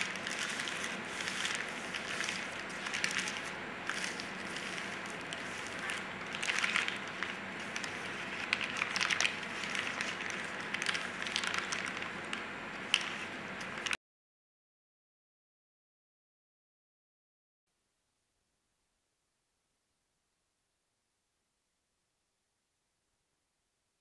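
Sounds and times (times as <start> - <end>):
paper rustling and crinkling: 0.0 - 14.0.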